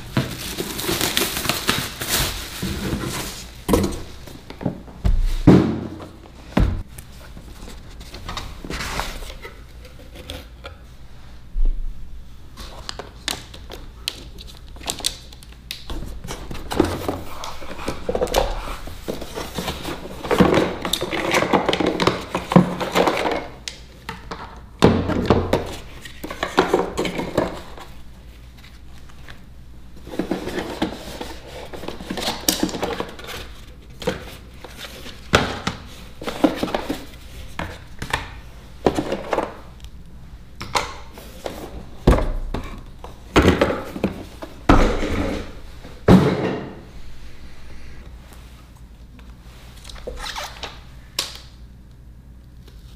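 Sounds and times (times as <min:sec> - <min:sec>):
cardboard boxes rustling and thunking: 0:00.0 - 0:09.5, 0:15.9 - 0:23.5, 0:30.0 - 0:39.6.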